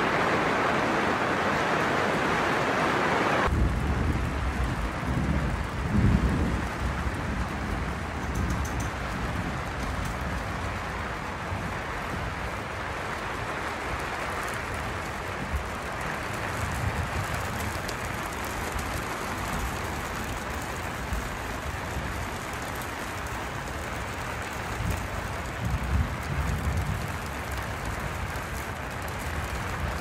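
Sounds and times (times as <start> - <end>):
rain pattering on fabric roof: 0.0 - 30.0.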